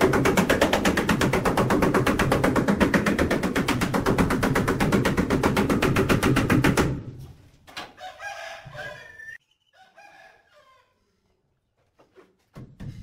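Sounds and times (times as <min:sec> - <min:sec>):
rooster crowing: 0:07.9 - 0:11.0.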